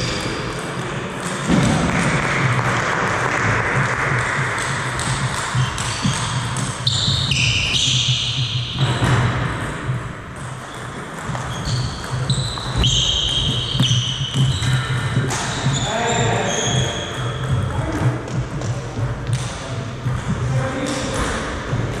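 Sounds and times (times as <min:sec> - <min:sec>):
sneakers squeaking on floor: 0:04.6 - 0:22.0.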